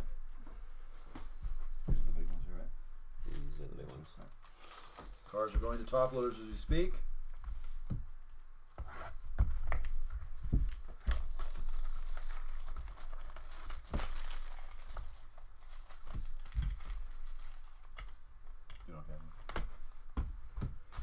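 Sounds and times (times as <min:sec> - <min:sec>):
wrapper crinkling and tearing: 0:04.3 - 0:06.5, 0:10.7 - 0:18.0.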